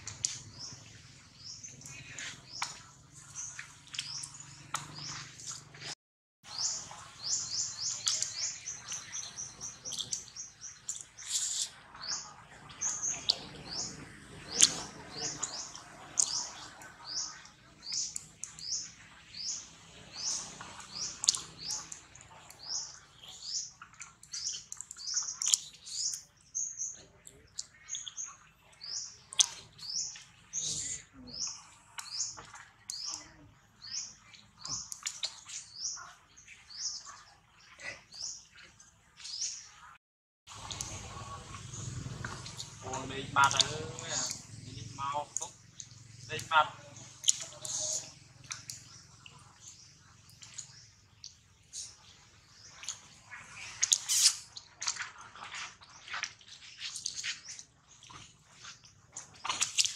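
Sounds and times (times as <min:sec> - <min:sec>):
bird chirping: 0:00.0 - 0:55.0.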